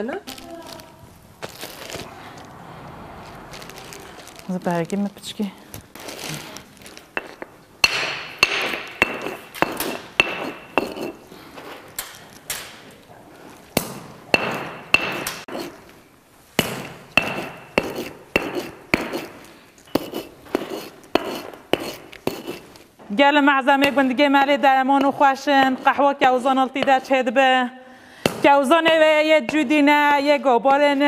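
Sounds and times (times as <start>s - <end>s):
stone pounding on stone slab: 7.2s - 11.2s, 13.8s - 15.8s, 16.6s - 22.6s.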